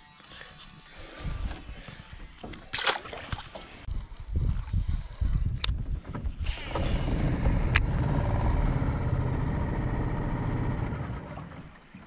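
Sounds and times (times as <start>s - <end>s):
outboard motor running: 6.5s - 12.0s.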